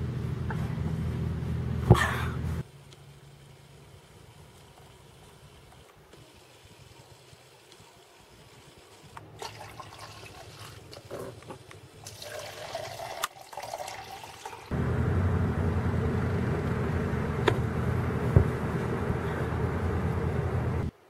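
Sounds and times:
water pouring into plastic cup: 9.4s - 11.0s, 12.0s - 14.7s
thump: 18.3s - 18.6s.

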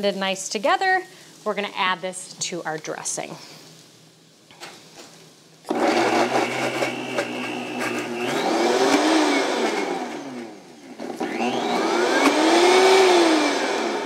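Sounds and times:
blender motor running: 5.7s - 14.0s.

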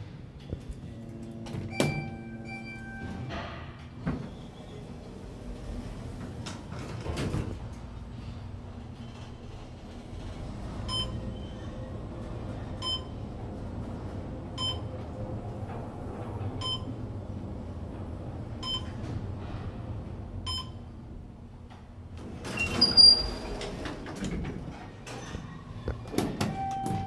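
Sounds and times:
elevator running hum: 0.0s - 27.0s
elevator arrival chime: 1.0s - 3.3s.

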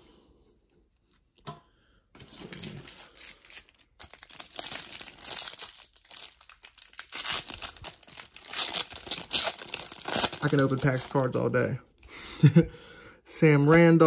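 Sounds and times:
foil wrapper crinkling: 2.2s - 11.6s.

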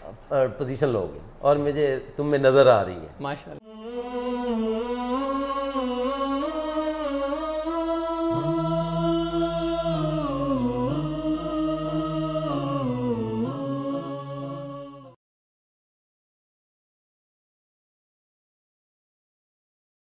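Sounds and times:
lower voice singing: 3.6s - 15.2s
voices singing long notes: 3.6s - 15.2s.

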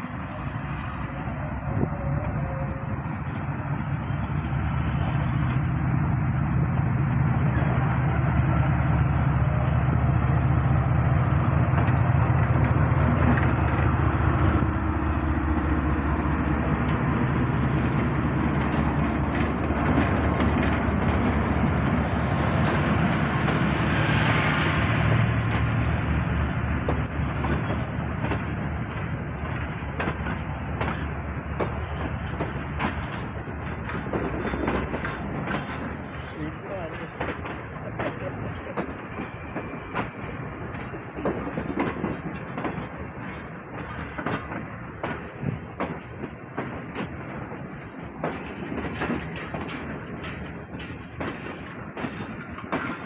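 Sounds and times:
train coaches rumbling: 0.0s - 53.0s
wheels clicking over rail joints: 11.4s - 14.8s, 15.5s - 23.7s, 26.8s - 53.0s.

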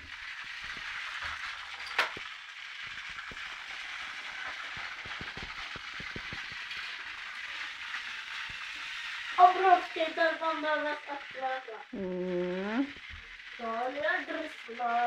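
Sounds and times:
toy train motor whir: 0.0s - 15.0s
light clicks of toy trains: 13.0s - 15.0s.

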